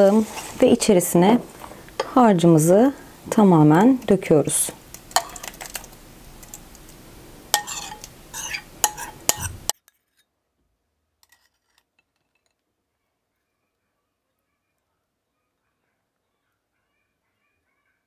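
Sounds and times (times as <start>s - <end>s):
spoon clinking against bowl: 7.6s - 9.5s
spoon scraping batter from bowl: 7.6s - 10.2s, 11.2s - 12.5s.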